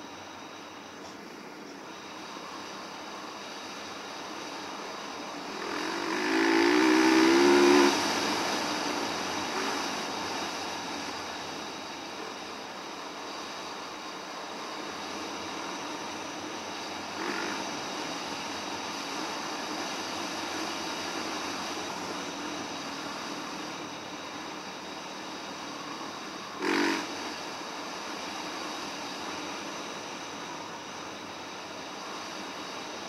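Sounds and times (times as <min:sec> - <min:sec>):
dirt bike engine running: 0:04.3 - 0:11.8, 0:14.5 - 0:24.0, 0:26.5 - 0:27.5.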